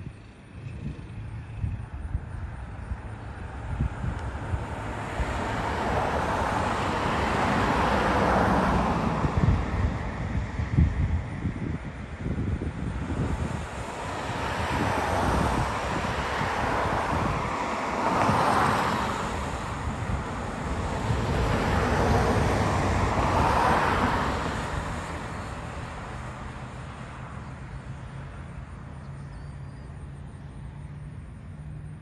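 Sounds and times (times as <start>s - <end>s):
wind buffeting microphone: 0.0s - 28.3s
jet airliner roar: 3.6s - 26.6s.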